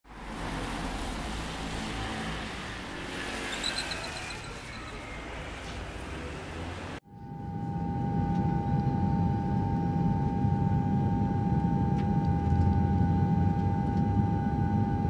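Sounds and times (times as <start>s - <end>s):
road traffic rushing: 0.1s - 7.0s.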